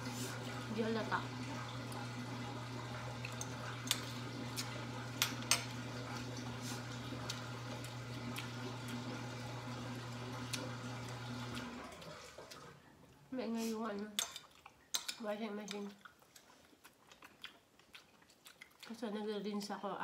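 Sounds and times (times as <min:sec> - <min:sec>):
washing machine humming: 0:00.0 - 0:14.0.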